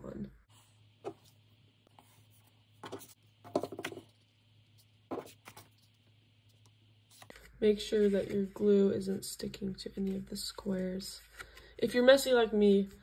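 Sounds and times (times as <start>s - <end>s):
faint steady hum: 0.0s - 13.0s
paper rustling and tapping: 2.8s - 4.1s.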